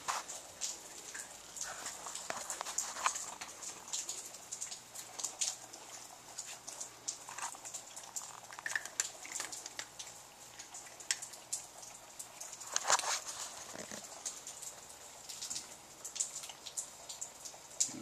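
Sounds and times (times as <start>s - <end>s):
cats crunching dry kibble: 7.2s - 10.0s.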